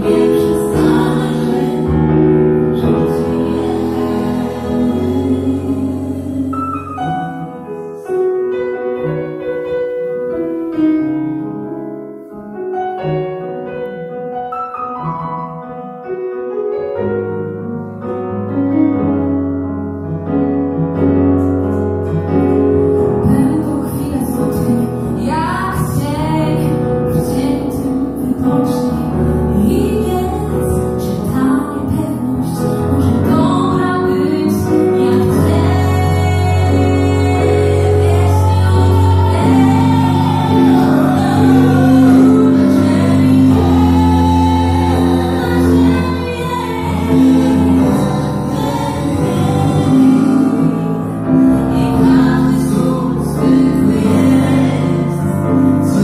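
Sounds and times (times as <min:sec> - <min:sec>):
person singing: 0:00.0 - 0:08.2, 0:23.2 - 0:56.0
piano playing: 0:00.0 - 0:56.0.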